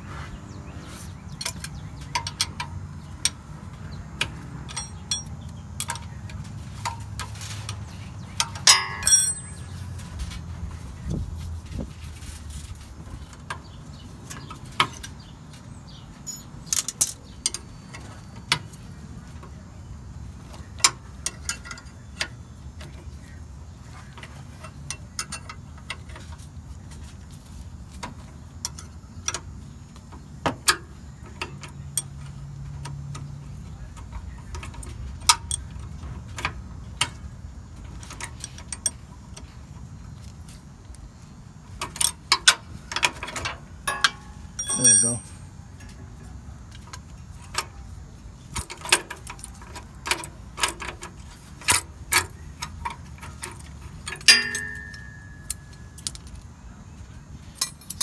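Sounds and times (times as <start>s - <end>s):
wrench clicking on metal: 8.4s - 9.6s.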